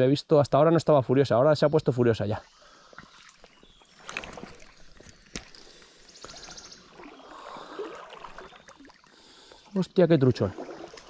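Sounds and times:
water splashing: 2.8s - 11.0s.

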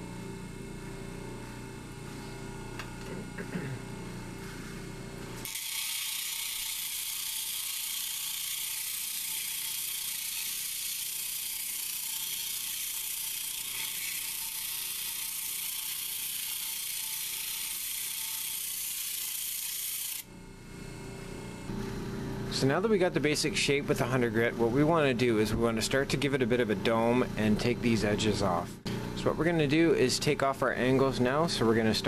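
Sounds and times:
low machine hum: 0.0s - 5.5s, 20.2s - 32.0s.

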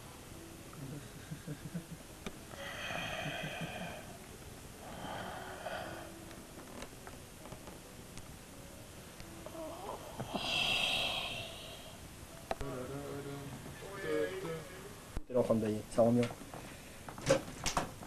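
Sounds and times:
man breathing heavily: 2.5s - 4.2s, 10.2s - 12.0s.

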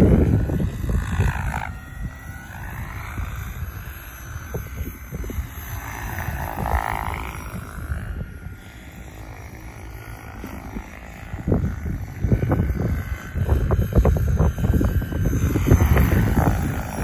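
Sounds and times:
electric motor whine: 0.0s - 17.0s
helicopter rotor whoosh: 0.0s - 17.0s
wind buffeting microphone: 0.0s - 17.0s.

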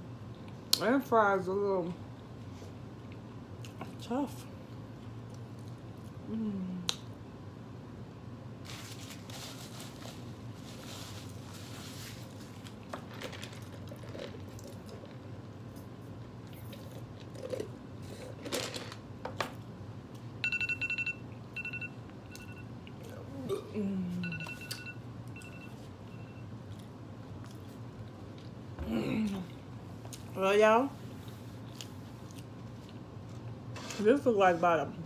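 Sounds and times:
soft chewing: 2.1s - 4.0s, 4.6s - 6.3s, 24.4s - 30.4s, 31.0s - 33.6s
timer alarm high beeps: 20.4s - 22.7s, 24.2s - 26.4s.

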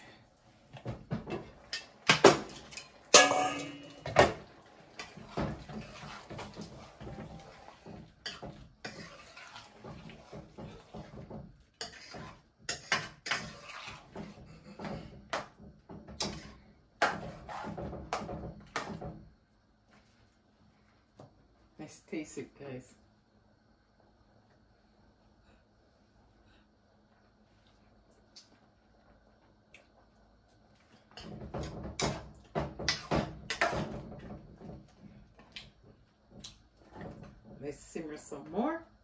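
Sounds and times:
metal spoon scraping pot: 5.0s - 11.1s, 11.8s - 14.3s.

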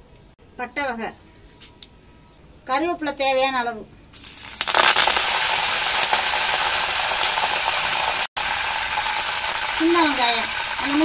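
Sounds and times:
spices sizzling in hot oil: 4.1s - 11.0s.

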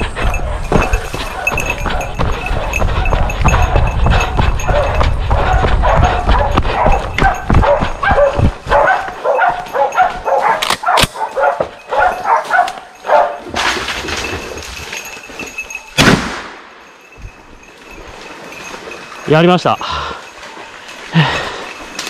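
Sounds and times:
dog barking: 0.2s - 13.5s
gunshot: 16.0s - 16.6s.

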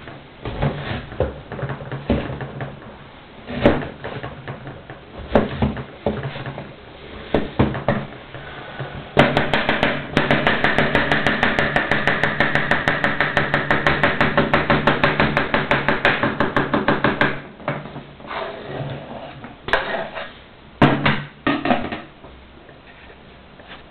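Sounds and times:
knife scraping board: 18.2s - 20.4s.

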